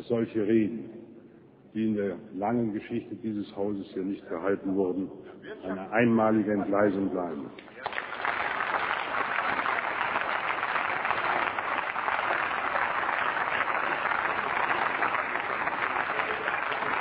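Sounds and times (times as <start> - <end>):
crowd applauding: 7.7 - 17.0.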